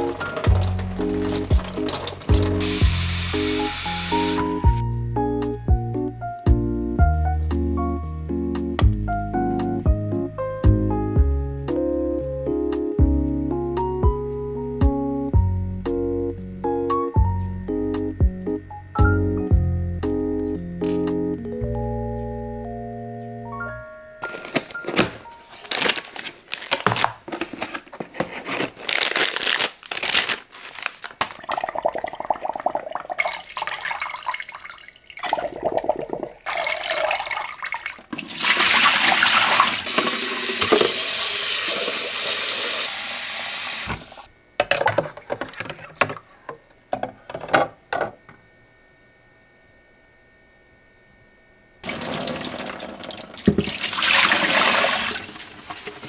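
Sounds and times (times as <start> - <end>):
packaging rustling: 24.2 - 31.6
tap running into plastic pitcher: 53.4 - 53.9.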